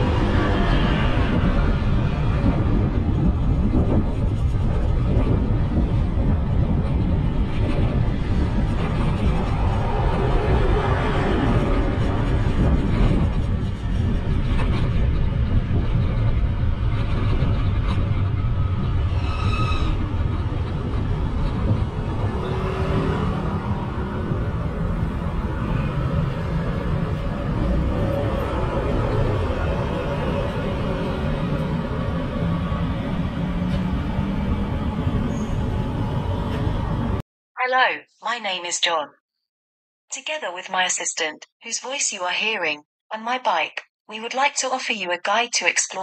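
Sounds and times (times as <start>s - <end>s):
road traffic: 0.0s - 3.6s, 7.0s - 12.8s, 15.1s - 37.2s
wind rumble: 0.0s - 37.2s.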